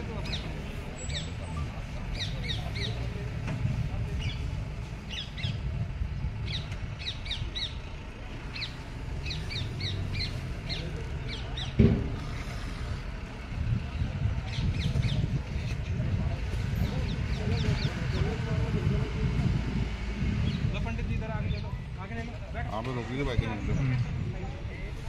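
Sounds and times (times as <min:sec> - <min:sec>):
thump: 0:11.8 - 0:12.2.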